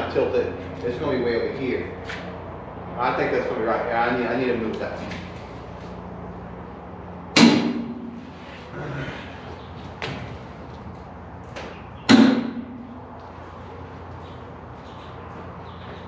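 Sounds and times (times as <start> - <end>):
heavy metal clangs: 7.3 - 8.3, 12.1 - 12.9.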